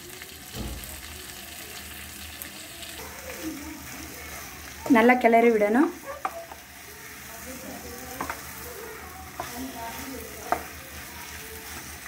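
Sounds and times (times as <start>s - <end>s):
meat sizzling in oil: 0.0s - 12.0s
spatula knocking against pan: 10.4s - 10.8s.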